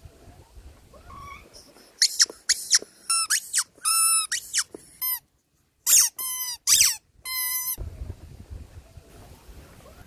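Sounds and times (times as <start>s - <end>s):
squeaky toy squeaks: 2.0s - 5.2s, 5.8s - 7.8s.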